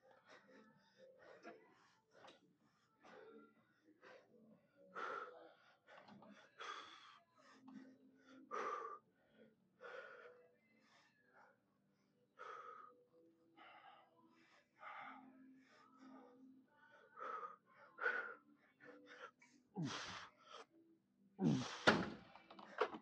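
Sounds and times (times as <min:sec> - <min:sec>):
man gasping breaths: 0:04.0 - 0:09.0, 0:17.1 - 0:20.7, 0:21.4 - 0:23.0.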